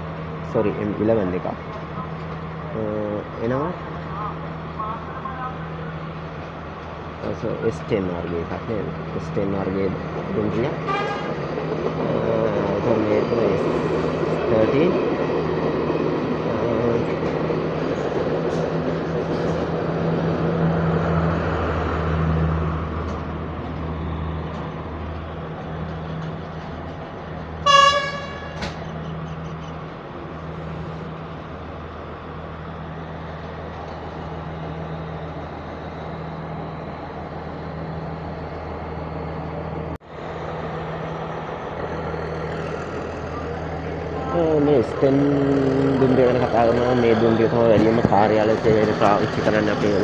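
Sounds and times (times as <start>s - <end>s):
train engine droning: 0.0s - 50.0s
train horn toot: 10.8s - 11.4s, 27.6s - 28.7s.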